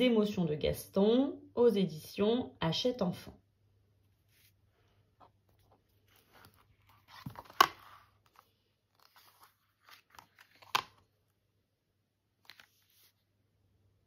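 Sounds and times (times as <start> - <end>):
book pages rustling: 4.1 - 11.3, 12.3 - 13.4.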